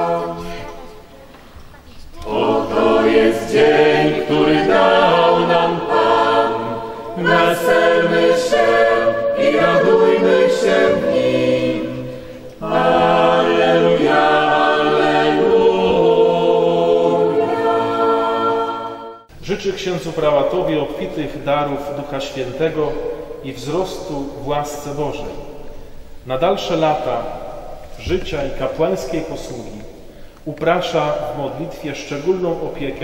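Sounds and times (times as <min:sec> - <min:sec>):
mixed choir singing in harmony: 0:00.0 - 0:01.3, 0:02.2 - 0:19.3.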